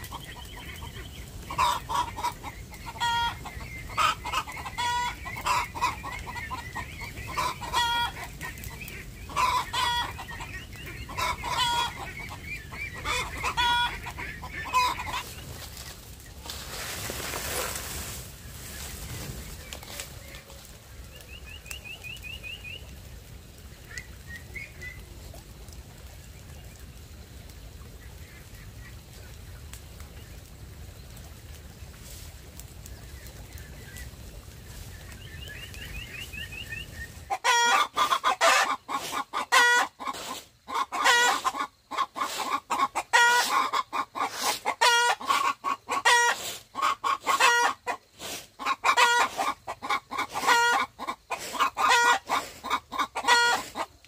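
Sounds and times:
chickens clucking: 0.0 - 27.2, 32.9 - 54.0
bonfire burning: 0.0 - 37.3.

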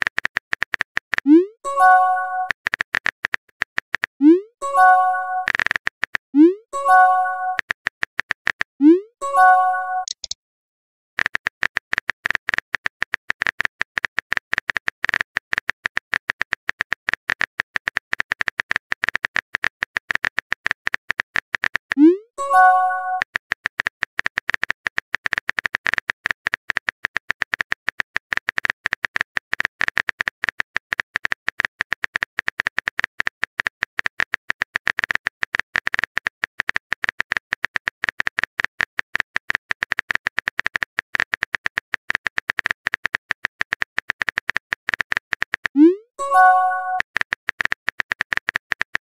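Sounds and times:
simulated keyboard clicking: 0.0 - 10.4, 11.2 - 49.0
short message chime: 46.2 - 47.0.

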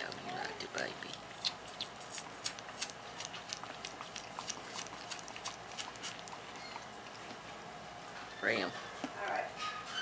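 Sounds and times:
fawn suckling on bottle: 0.0 - 7.4.

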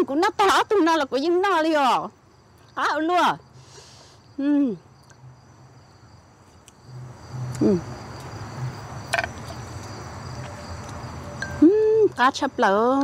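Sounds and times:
insects trilling: 0.0 - 13.0
person humming: 7.6 - 7.9, 11.6 - 12.2.

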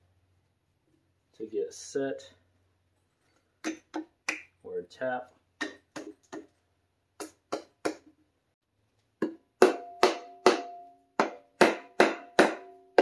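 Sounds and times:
mallet tapping metal: 9.2 - 13.0.

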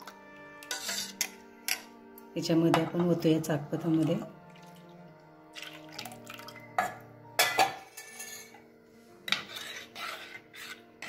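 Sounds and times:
soft background music: 0.0 - 11.0
utensil clinking on metal pot: 0.6 - 1.9, 5.6 - 8.6
liquid pouring: 3.9 - 6.7.

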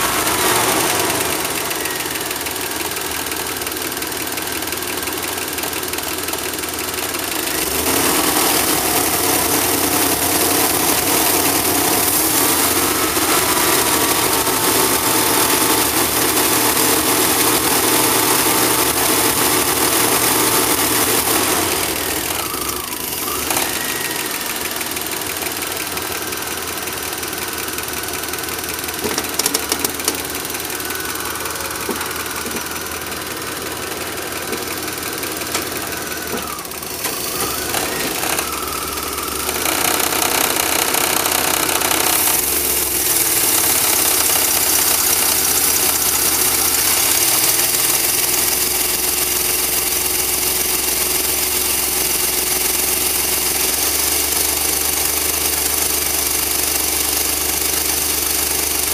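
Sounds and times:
van engine running: 0.0 - 58.9
sharp clicks: 29.0 - 30.4.

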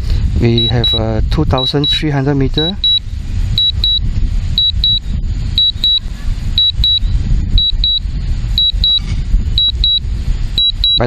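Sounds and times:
wind buffeting microphone: 0.0 - 11.0
remote controller double beep: 0.6 - 1.0, 1.6 - 2.0, 2.6 - 3.0, 3.6 - 4.0, 4.6 - 5.0, 5.6 - 6.0, 6.6 - 8.0, 8.6 - 10.0, 10.6 - 11.0.

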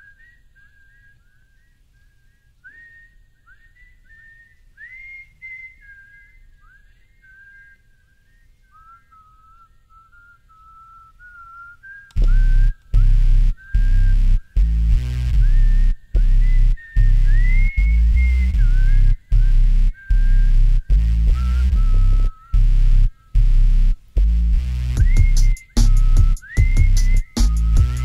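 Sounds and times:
person whistling a tune: 0.0 - 22.7, 25.0 - 28.0
loud bass-heavy music: 12.2 - 17.4, 18.0 - 28.0.

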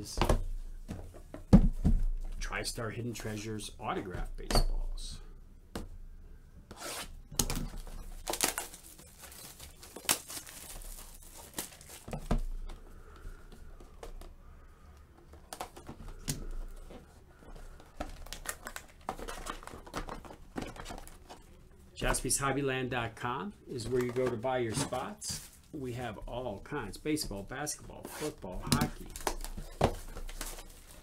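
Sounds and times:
card packs handled: 7.4 - 22.4, 23.7 - 31.0
plastic shrink-wrap tearing: 8.2 - 12.1.

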